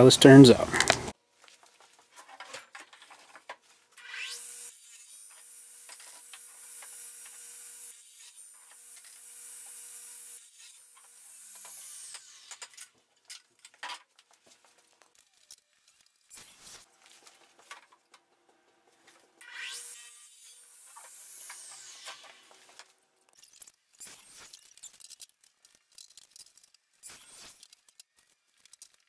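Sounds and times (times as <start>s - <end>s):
saw motor whining: 4.0s - 12.7s, 19.4s - 25.0s.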